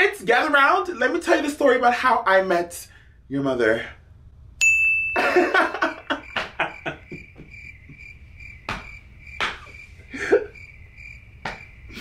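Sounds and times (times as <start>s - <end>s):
cricket chirping: 5.1s - 12.0s
loud knocks: 6.3s - 9.8s.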